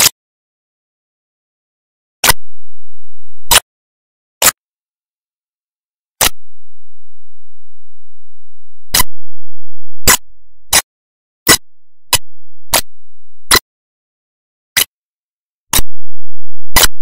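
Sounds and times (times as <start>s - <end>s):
sharp digital clicks: 2.2s - 3.6s, 6.2s - 9.3s, 9.9s - 10.8s, 11.5s - 13.6s, 15.7s - 17.0s.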